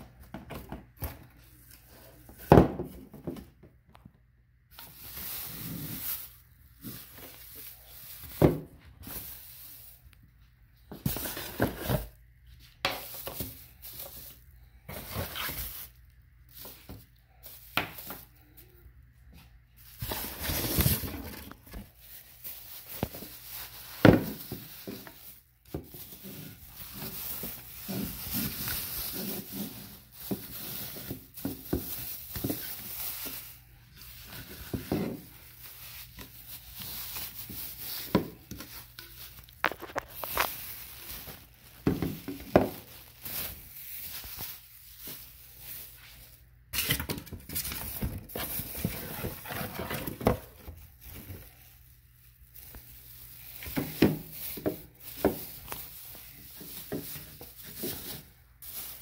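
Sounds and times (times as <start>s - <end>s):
plastic bags crinkling: 4.7s - 10.1s, 12.9s - 18.8s, 19.7s - 59.0s
cardboard box rustling: 19.8s - 45.3s, 47.5s - 51.4s.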